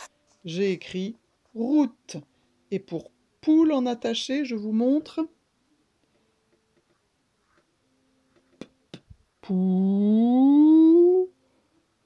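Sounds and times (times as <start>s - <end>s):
woman drawing out a vowel: 9.4s - 11.4s.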